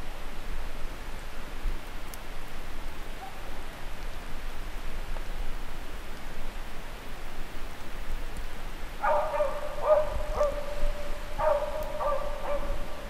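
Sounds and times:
steady hiss: 0.0s - 13.0s
dog baying: 9.0s - 10.6s, 11.4s - 12.8s.

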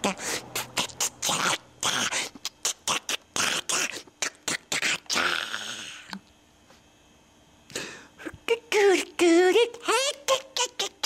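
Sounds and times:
man beatboxing: 0.5s - 5.3s.

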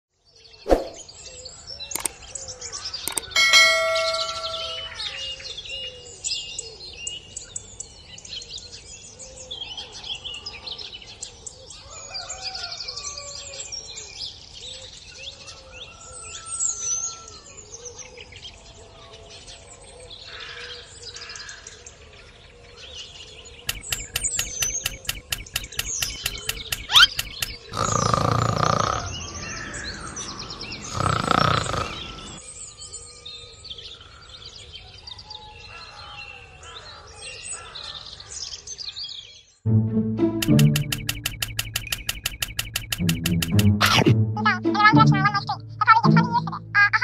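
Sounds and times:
fast regular clicks: 3.1s - 4.9s, 23.7s - 29.1s, 40.4s - 44.0s
ringing bell-like ding: 3.1s - 5.2s
birds chirping and singing: 23.7s - 39.3s.

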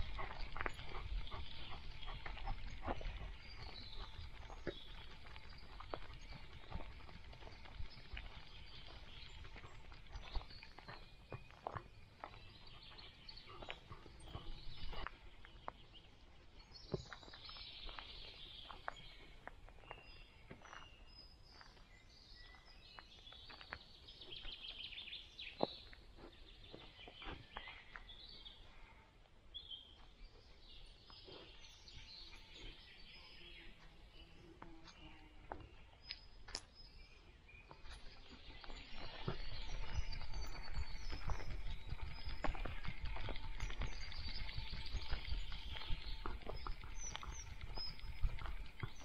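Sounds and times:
footsteps on forest floor: 0.0s - 28.8s, 29.6s - 49.0s
songbirds singing: 0.0s - 49.0s.

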